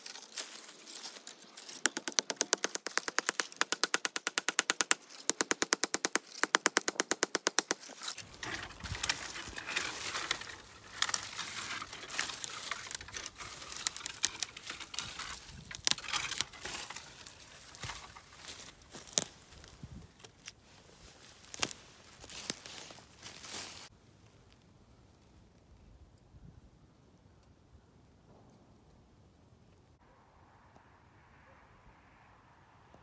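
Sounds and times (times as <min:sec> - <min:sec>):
tree trunk cracking and rustling: 0:00.0 - 0:03.8, 0:07.6 - 0:23.9.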